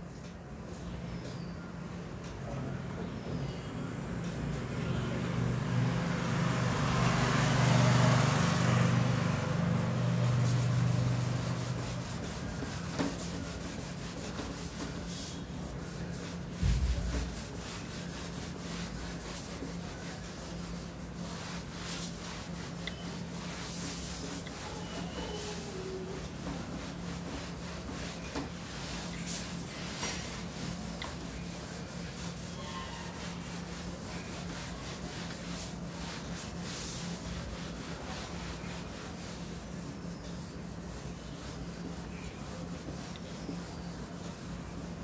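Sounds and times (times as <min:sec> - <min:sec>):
eraser rubbing whiteboard: 0:10.2 - 0:45.0.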